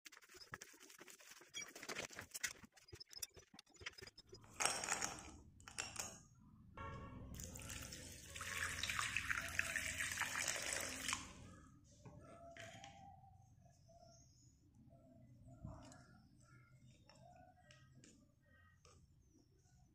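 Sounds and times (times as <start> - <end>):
water pouring and splashing: 7.4 - 11.4.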